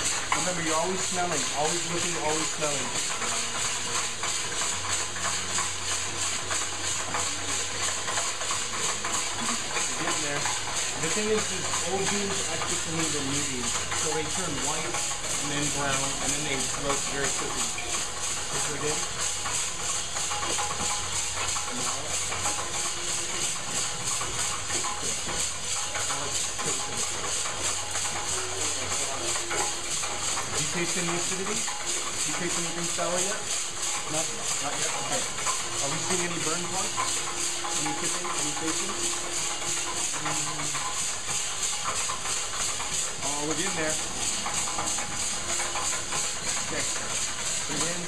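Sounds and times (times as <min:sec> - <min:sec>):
coffee roaster drum tumbling beans: 0:00.0 - 0:48.0.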